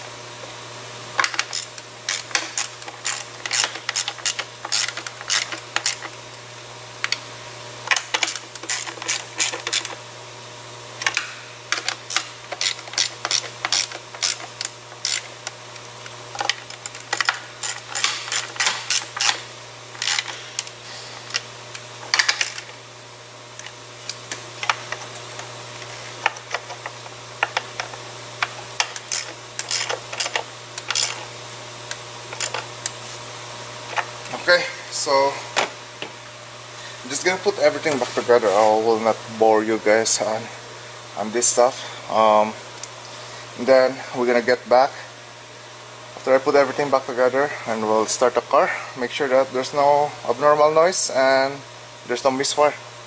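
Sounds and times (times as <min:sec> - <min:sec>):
hand ratchet clicking: 0:01.2 - 0:06.2, 0:07.9 - 0:10.0, 0:11.0 - 0:15.6, 0:16.4 - 0:19.4, 0:20.0 - 0:20.7, 0:21.3 - 0:22.7, 0:26.2 - 0:31.2, 0:31.9 - 0:33.0.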